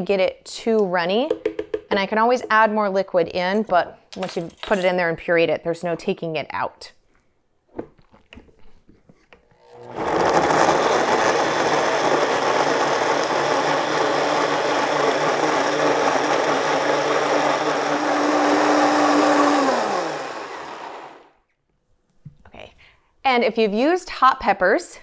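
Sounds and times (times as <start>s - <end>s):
blender running at high speed: 9.7s - 21.3s.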